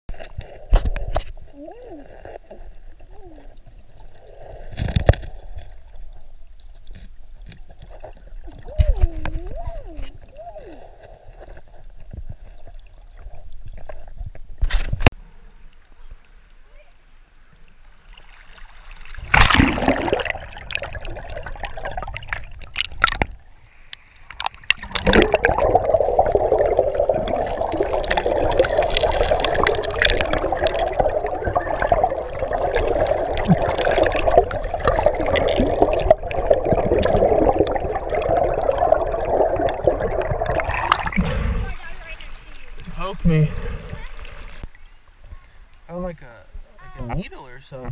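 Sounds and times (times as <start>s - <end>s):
water rushing: 15.4s - 47.9s
river water sloshing and gurgling: 15.9s - 45.3s
loud water splash: 18.3s - 23.2s, 24.7s - 44.6s.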